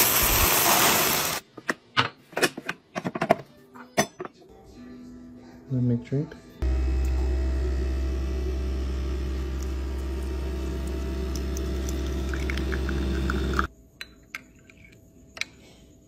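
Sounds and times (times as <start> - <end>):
coffee maker humming: 6.6 - 13.7.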